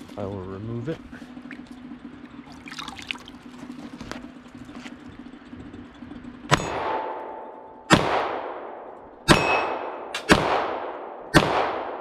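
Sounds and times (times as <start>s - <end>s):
steel target ringing: 6.5s - 8.4s, 9.2s - 10.4s
pistol gunshots: 6.5s - 12.0s.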